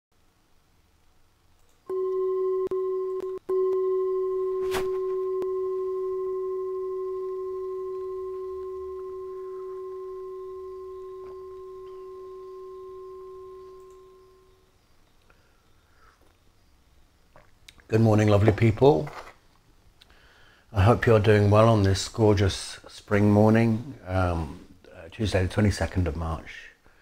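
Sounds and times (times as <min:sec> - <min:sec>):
bell-like ringing tone: 0:01.9 - 0:14.6.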